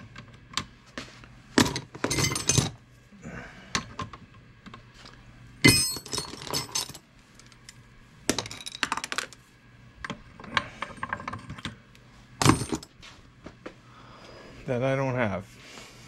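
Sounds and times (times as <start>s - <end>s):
metal tools clinking and clattering: 1.6s - 2.8s, 5.7s - 7.0s.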